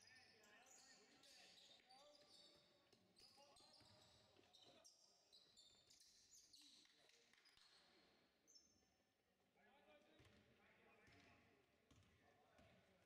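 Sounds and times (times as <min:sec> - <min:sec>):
sneaker squeaks: 0:00.4 - 0:08.6
basketball bouncing on court: 0:11.1 - 0:12.8.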